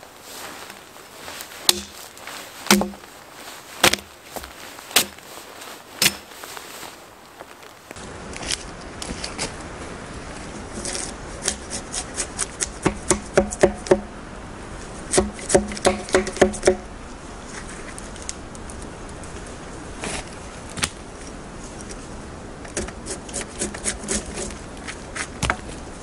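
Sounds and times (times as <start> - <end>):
drawknife knocking on log: 2.7 - 3.0.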